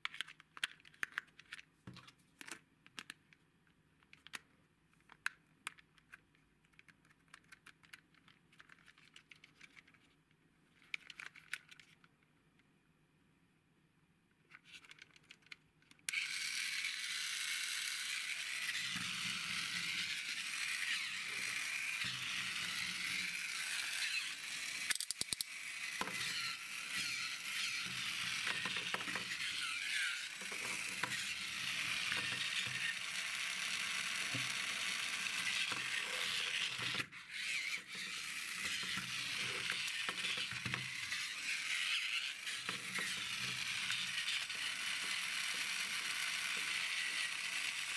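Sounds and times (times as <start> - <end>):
toy motor and gears whirring: 16.1 - 47.9
toy switch clicks: 24.8 - 26.3.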